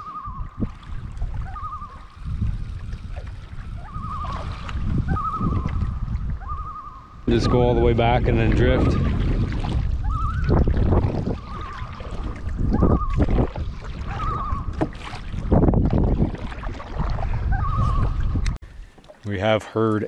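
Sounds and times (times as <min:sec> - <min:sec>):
loon tremolo call: 0:01.4 - 0:02.1, 0:05.1 - 0:07.8.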